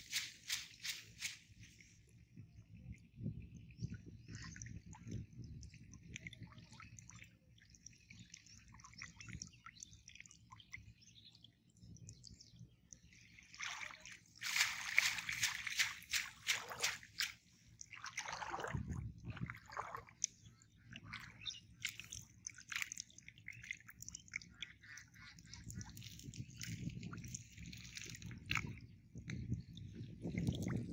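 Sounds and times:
water splashing and sloshing: 0.0 - 11.0, 11.8 - 30.9
water dripping from net: 12.9 - 18.7.

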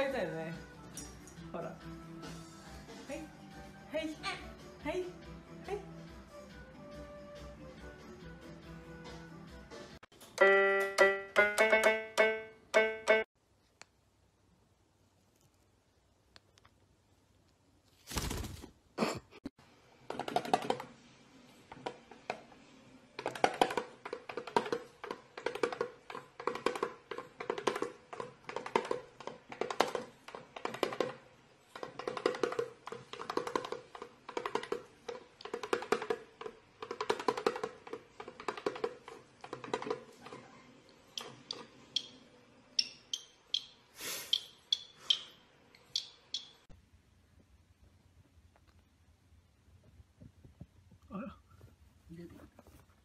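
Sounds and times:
bird drumming on small drum: 42.8 - 46.6.

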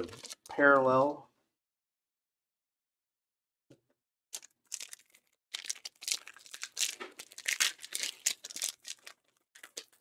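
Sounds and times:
cards rustling: 0.0 - 0.9, 4.4 - 10.0.

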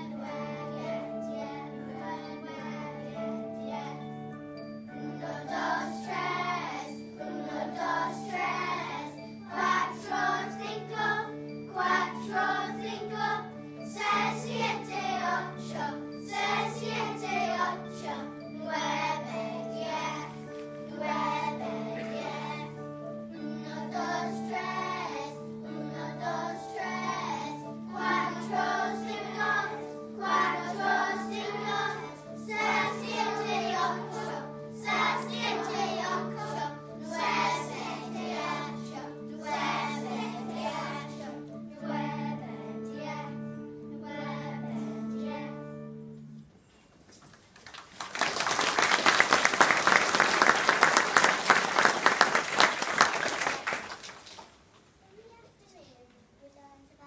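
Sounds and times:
children singing: 0.0 - 45.8
musical accompaniment: 0.0 - 46.8, 48.0 - 54.0
children clapping: 47.3 - 54.7.

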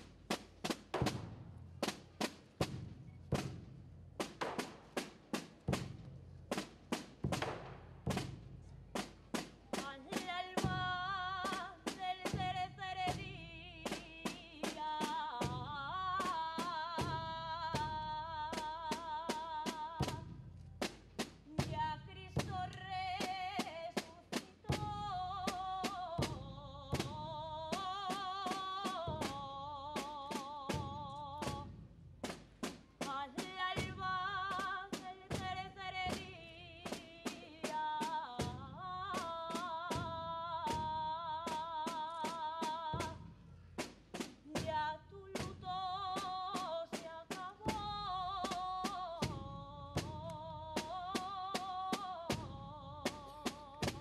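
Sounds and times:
procession drum strokes: 0.0 - 54.0
woman singing through microphone: 9.8 - 20.2, 21.5 - 31.6, 33.0 - 43.2, 44.4 - 54.0.

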